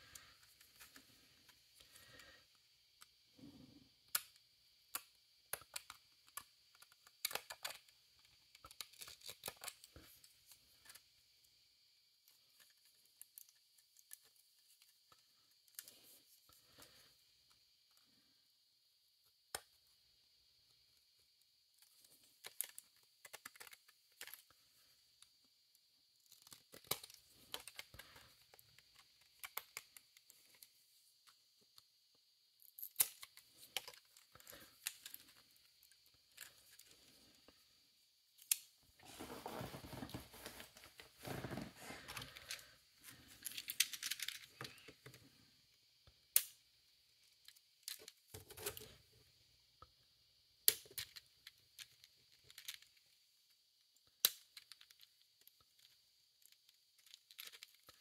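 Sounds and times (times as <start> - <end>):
small clicks and snaps: 4.0 - 11.0, 12.2 - 16.0, 21.7 - 24.6, 25.2 - 31.9, 32.6 - 37.0, 38.3 - 38.8, 46.0 - 49.0, 50.6 - 53.1, 53.8 - 58.0.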